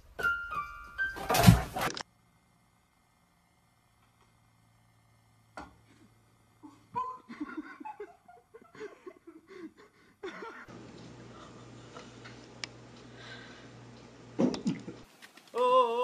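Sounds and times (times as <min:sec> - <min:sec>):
person laughing: 0:06.6 - 0:10.7.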